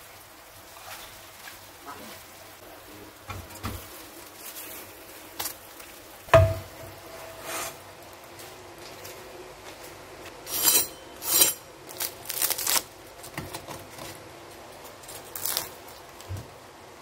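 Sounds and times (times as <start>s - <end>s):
knife knocking on wooden board: 6.4s - 6.7s.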